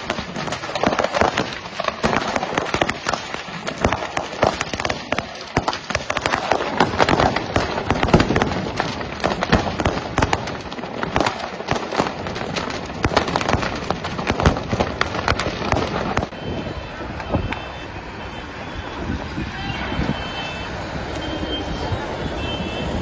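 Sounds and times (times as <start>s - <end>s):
firecrackers banging and crackling: 0.0s - 17.7s.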